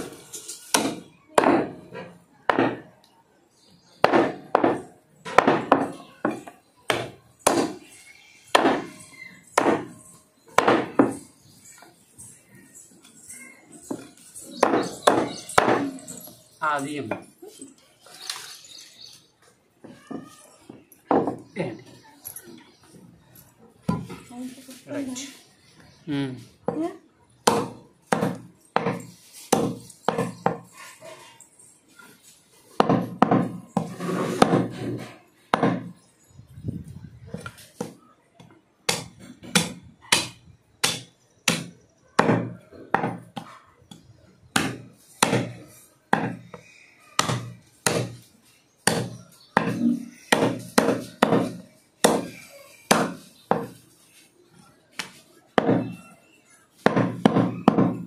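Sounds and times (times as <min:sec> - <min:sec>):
cleaver chopping meat and bone: 0:00.7 - 0:01.8, 0:02.5 - 0:02.8, 0:04.0 - 0:07.9, 0:08.5 - 0:09.0, 0:09.6 - 0:10.0, 0:10.6 - 0:11.2, 0:13.9 - 0:15.9, 0:27.4 - 0:30.7, 0:35.5 - 0:35.9, 0:38.9 - 0:43.5, 0:44.5 - 0:46.6, 0:47.2 - 0:53.8, 0:55.6 - 0:56.0, 0:56.8 - 0:58.0.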